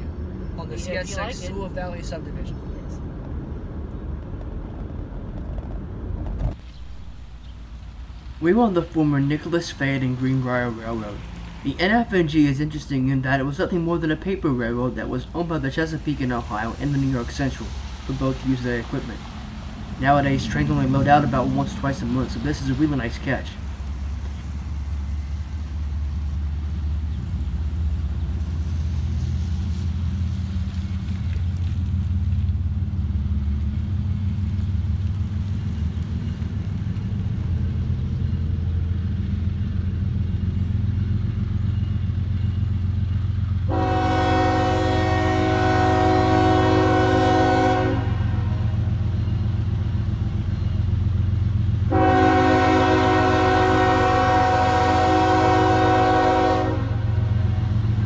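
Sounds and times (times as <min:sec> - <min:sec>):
diesel locomotive rumbling: 0:00.0 - 0:58.0
train air horn blasts: 0:43.7 - 0:48.7, 0:51.9 - 0:57.7.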